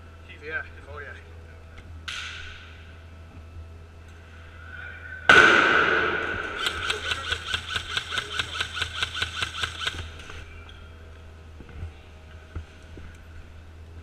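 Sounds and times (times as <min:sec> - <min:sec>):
loud echoing bang: 0:05.3 - 0:07.2
airsoft shots cracking: 0:05.3 - 0:10.4.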